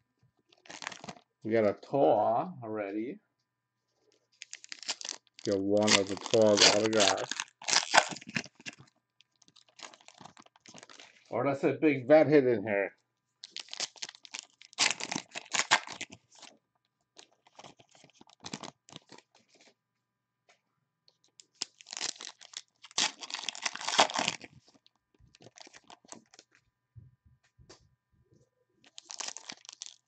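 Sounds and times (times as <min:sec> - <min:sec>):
foil wrappers tearing and crinkling: 0:00.5 - 0:01.2, 0:04.4 - 0:11.3, 0:13.4 - 0:16.5, 0:17.2 - 0:19.7, 0:21.4 - 0:26.6, 0:28.8 - 0:30.0.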